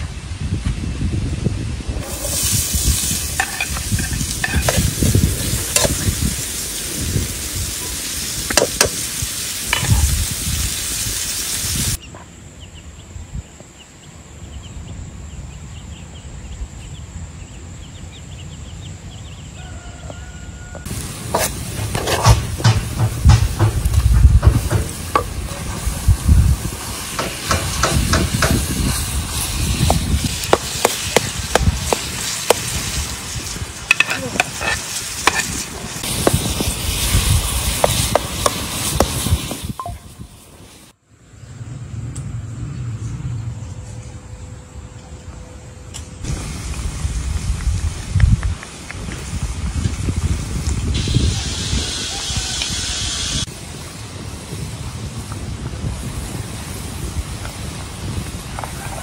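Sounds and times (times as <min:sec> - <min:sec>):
spoon scraping a pan: 0:02.0 - 0:06.1, 0:21.3 - 0:22.4, 0:33.9 - 0:36.6
food sizzling in a frying pan: 0:02.0 - 0:12.0, 0:23.0 - 0:40.9, 0:50.9 - 0:53.5.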